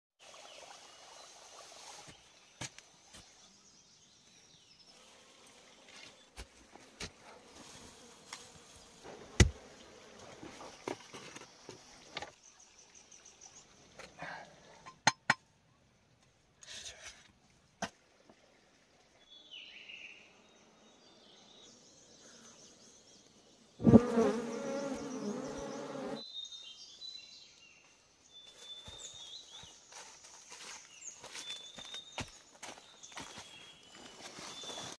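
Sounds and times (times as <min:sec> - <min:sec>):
faint outdoor ambience: 0:00.2 - 0:34.9
flying insect buzzing: 0:07.3 - 0:10.7, 0:23.8 - 0:26.2.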